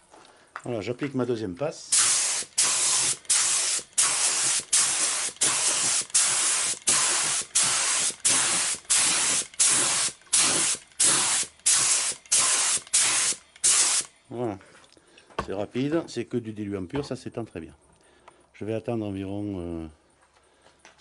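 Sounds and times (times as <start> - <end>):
paint spray gun hissing: 1.9 - 14.1.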